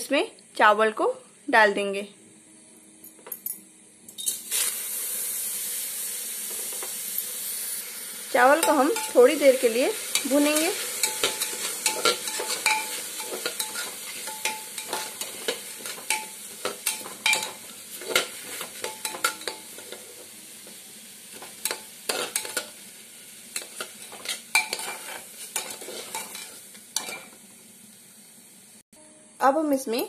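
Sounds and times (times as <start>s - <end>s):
rice sizzling: 4.1s - 28.8s
metal spatula scraping pot: 10.1s - 20.1s, 21.6s - 22.6s, 23.6s - 27.3s.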